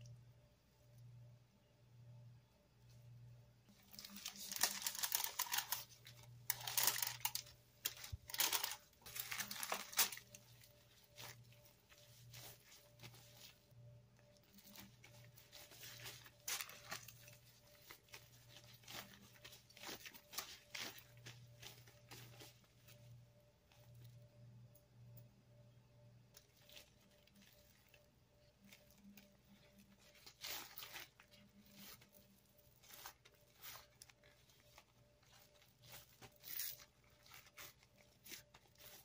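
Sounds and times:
aluminium foil crinkling: 0:03.7 - 0:24.2, 0:26.3 - 0:39.0
plastic gloves rustling: 0:03.7 - 0:24.3, 0:26.3 - 0:39.0.

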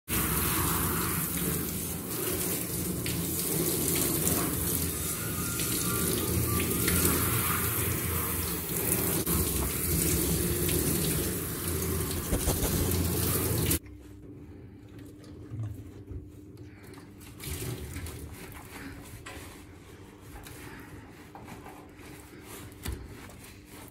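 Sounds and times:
shower spray on wet dog: 0:00.1 - 0:13.8.

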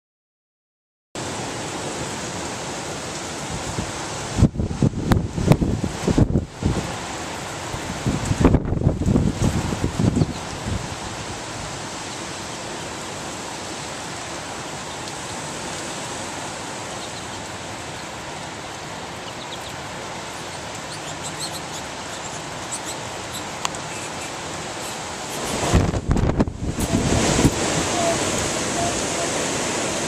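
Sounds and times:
heavy rain on street: 0:01.2 - 0:30.0
faint drip ticks: 0:14.9 - 0:15.9, 0:20.5 - 0:25.5.

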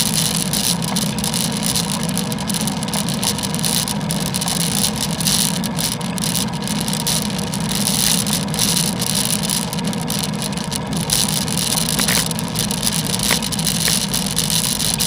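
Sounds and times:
bicycle on wet road: 0:00.0 - 0:15.0.

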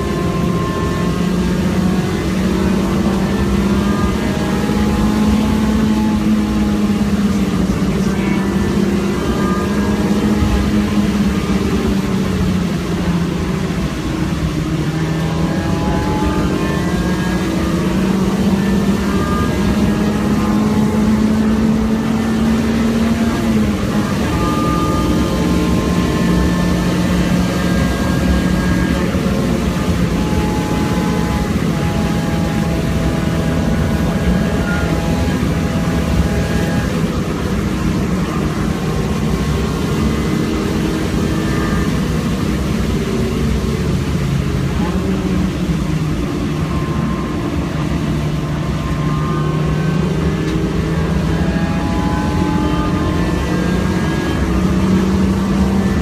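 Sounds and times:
car engine running hard: 0:00.0 - 0:56.0
road and tyre noise: 0:00.0 - 0:56.0.

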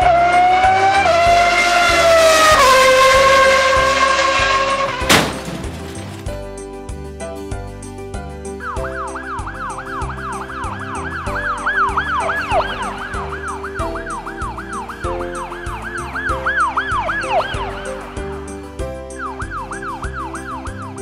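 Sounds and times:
cartoon siren yelping: 0:09.0 - 0:15.2.

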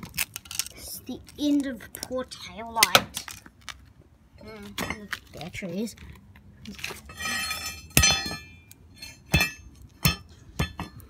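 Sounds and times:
plastic pieces clinking on concrete: 0:00.0 - 0:02.2, 0:02.8 - 0:03.9.

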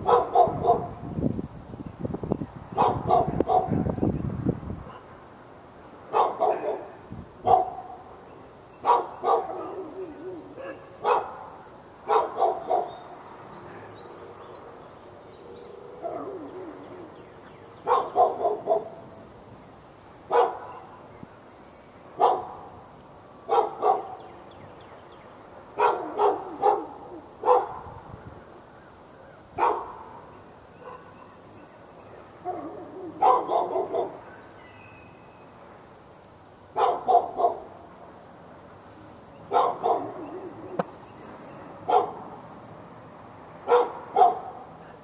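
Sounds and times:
dog barking: 0:00.0 - 0:01.0, 0:02.8 - 0:03.8, 0:06.1 - 0:08.0, 0:08.8 - 0:10.0, 0:10.6 - 0:11.5, 0:12.1 - 0:13.0, 0:16.0 - 0:16.4, 0:17.8 - 0:19.0, 0:20.3 - 0:21.0, 0:22.2 - 0:22.7, 0:23.5 - 0:24.2, 0:25.8 - 0:28.0, 0:29.6 - 0:30.2, 0:30.8 - 0:31.4, 0:32.4 - 0:34.4, 0:36.8 - 0:37.8, 0:39.5 - 0:40.6, 0:41.9 - 0:42.2, 0:43.7 - 0:44.7.

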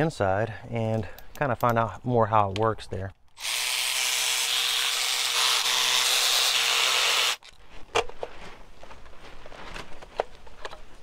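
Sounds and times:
cordless power ratchet running: 0:03.4 - 0:07.4.

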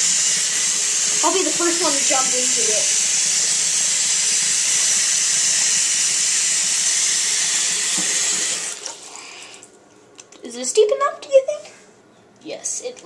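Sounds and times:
tap water pouring into sink: 0:07.8 - 0:09.1.

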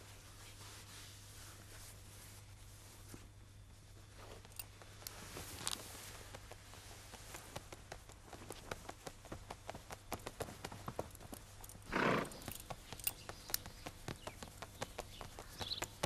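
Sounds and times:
faint rustling: 0:00.0 - 0:16.0
low steady hum: 0:00.0 - 0:16.0
light clicks and taps: 0:04.3 - 0:11.8, 0:12.4 - 0:16.0.

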